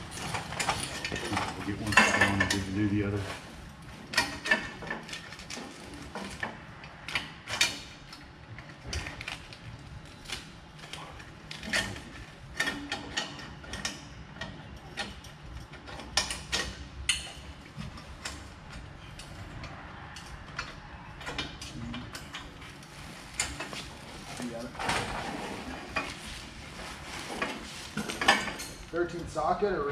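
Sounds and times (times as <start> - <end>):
metal parts clicking and clinking: 0.0 - 3.3, 27.2 - 29.4.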